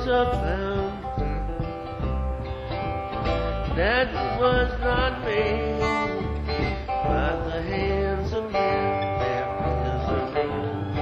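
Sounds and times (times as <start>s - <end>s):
acoustic guitar music: 0.0s - 11.0s.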